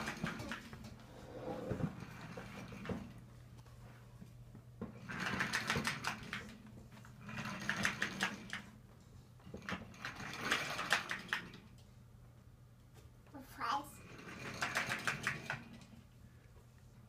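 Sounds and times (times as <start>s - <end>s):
toy train clicking on wood floor: 0.0s - 1.0s, 4.9s - 8.8s, 9.4s - 11.8s, 13.6s - 16.0s.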